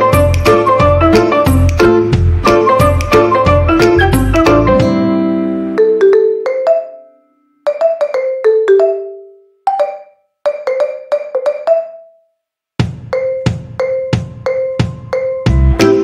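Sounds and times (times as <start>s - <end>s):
music of struck notes: 0.0s - 6.0s, 12.8s - 16.0s.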